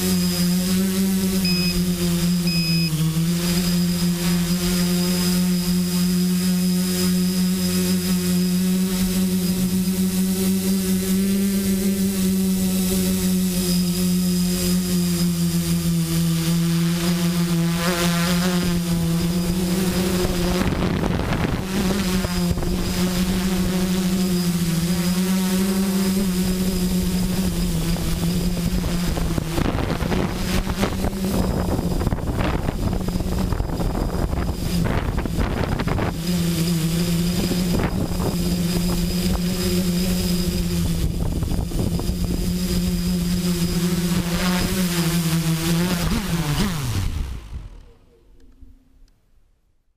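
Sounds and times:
multicopter propellers buzzing: 0.0 - 48.8
wind rushing over microphone: 18.7 - 24.8, 25.9 - 44.8.

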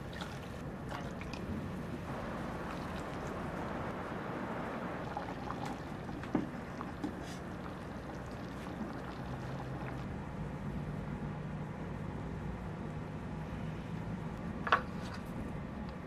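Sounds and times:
broth boiling and bubbling: 0.0 - 10.1
wooden spoon stirring: 5.0 - 10.0.

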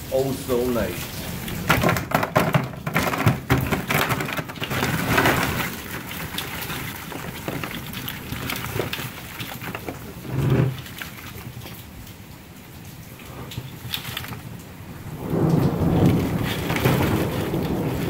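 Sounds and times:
shells clattering into plastic tub: 1.5 - 10.0.

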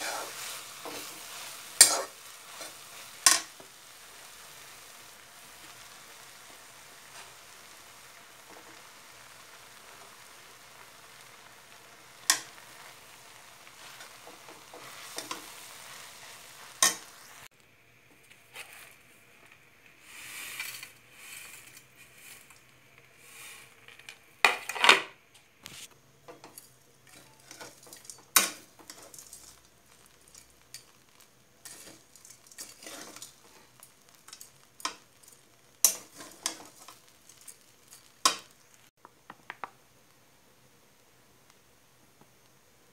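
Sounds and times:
stirring and scraping: 0.0 - 3.8, 13.7 - 17.3, 18.1 - 24.2, 25.8 - 38.7
food sizzling in a pan: 0.0 - 24.7, 25.6 - 42.9
utensil clicking against pan: 3.2 - 3.5, 12.2 - 12.5.

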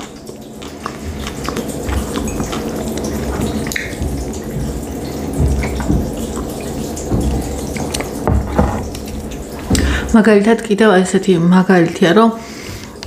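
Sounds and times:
sips and swallows: 0.0 - 6.5
close chewing with mouth clicks: 0.0 - 8.2.

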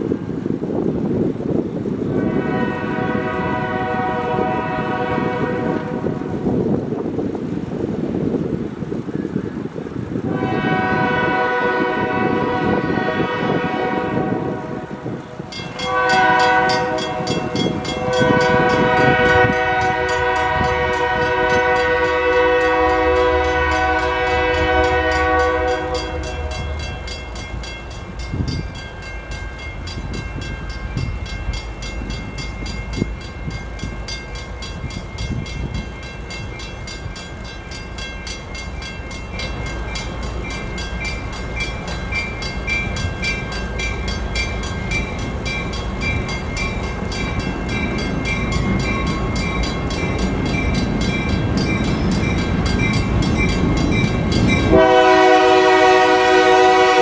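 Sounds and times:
diesel locomotive rumble: 0.0 - 57.0
locomotive air horn chord: 2.1 - 6.5, 10.2 - 27.1, 54.6 - 57.0
faint crossing signal bell: 15.5 - 55.2.

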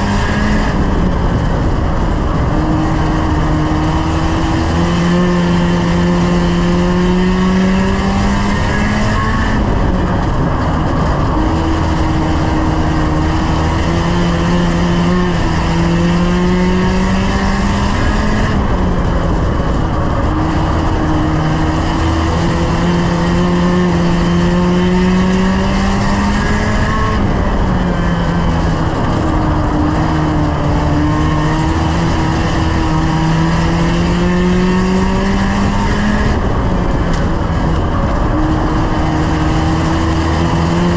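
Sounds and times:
race car engine revving: 0.0 - 40.9.

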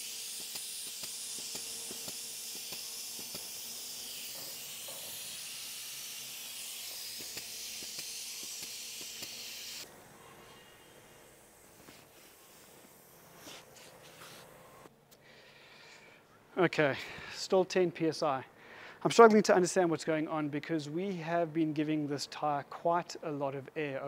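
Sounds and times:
compressed air hissing: 0.0 - 14.9.

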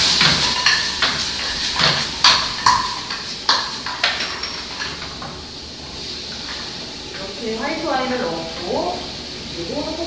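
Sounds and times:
pan knocking on a burner: 0.0 - 5.2
seafood sizzling in a frying pan: 0.0 - 10.0.

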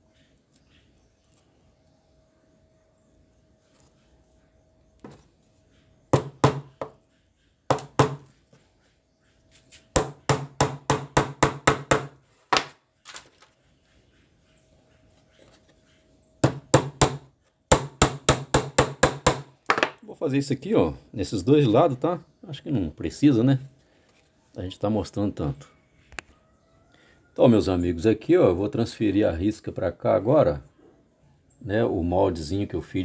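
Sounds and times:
hammer tapping nails into wood: 6.2 - 7.0, 7.7 - 8.3, 10.0 - 12.7, 16.4 - 19.9.

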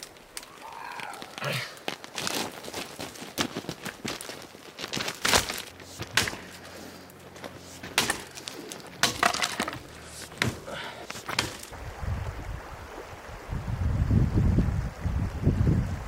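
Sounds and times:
hard objects clacking and snapping: 7.2 - 11.7.

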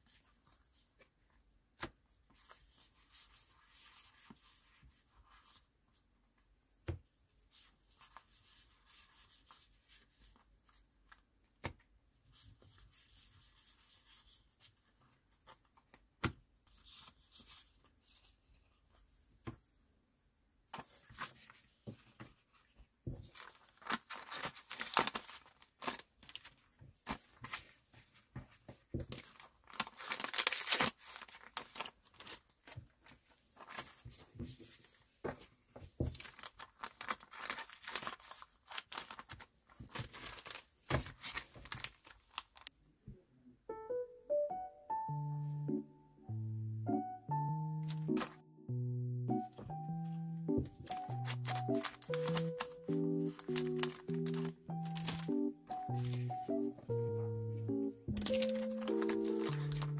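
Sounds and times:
plastic sleeves crinkling: 22.4 - 27.8, 29.0 - 34.2, 36.0 - 42.7, 47.8 - 48.4, 49.4 - 59.9.

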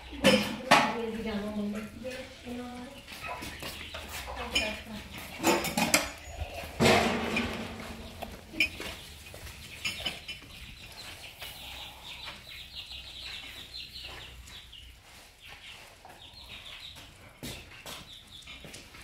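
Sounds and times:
chickens clucking and chirping: 0.0 - 19.0.

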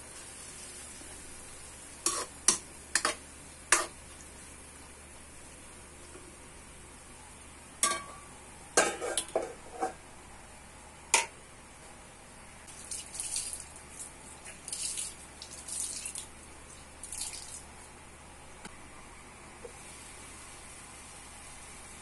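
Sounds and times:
food sizzling in wok: 0.0 - 4.8, 19.7 - 22.0
spatula clanking on metal wok: 7.8 - 8.2.

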